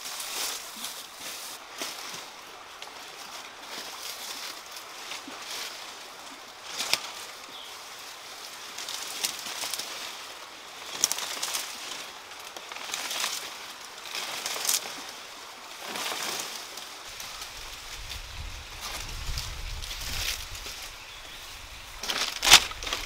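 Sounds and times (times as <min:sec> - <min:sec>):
dry leaves rustling and crackling: 0:00.0 - 0:23.0
twigs snapping: 0:21.9 - 0:23.0.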